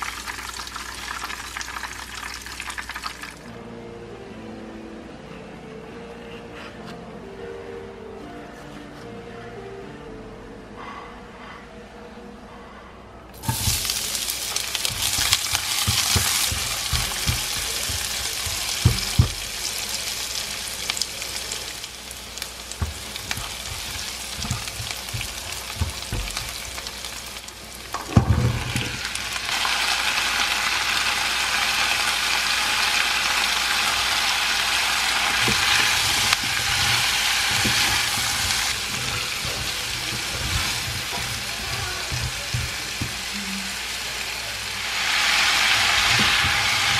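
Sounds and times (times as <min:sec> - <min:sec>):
vegetables sizzling in hot oil: 0:13.4 - 0:46.9
spatula knocking against wok: 0:14.9 - 0:19.5, 0:22.8 - 0:26.7, 0:35.4 - 0:43.3.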